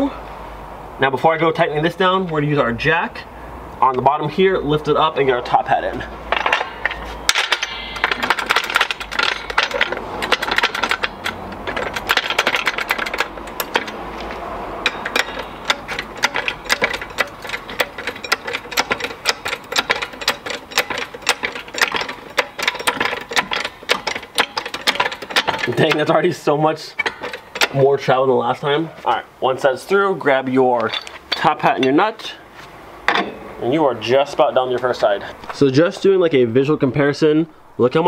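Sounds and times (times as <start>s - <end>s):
floor jack clicking and rattling: 6.3s - 26.2s.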